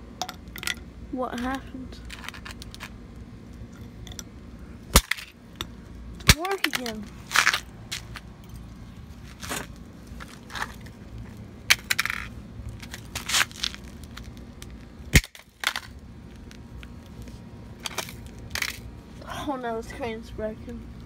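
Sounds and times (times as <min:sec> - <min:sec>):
plastic calculator cracking underfoot: 0:11.7 - 0:16.9.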